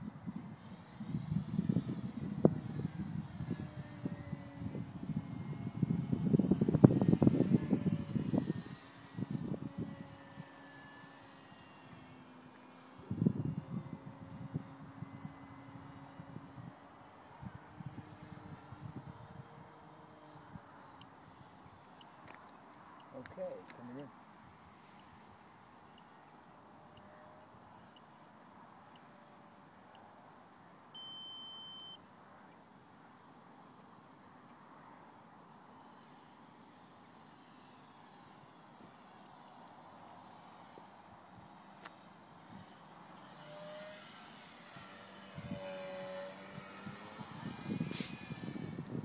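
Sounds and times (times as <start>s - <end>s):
wind buffeting microphone: 0.0s - 10.5s, 45.3s - 49.0s
model plane engine passing: 0.1s - 21.8s, 35.8s - 49.0s
high-pitched electronic beep: 31.0s - 32.0s.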